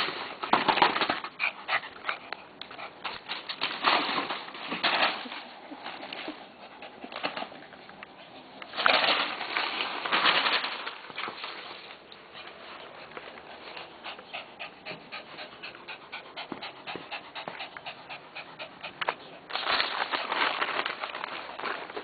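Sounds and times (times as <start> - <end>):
dog panting fast: 12.4 - 19.5
dog tearing newspaper: 19.5 - 22.0.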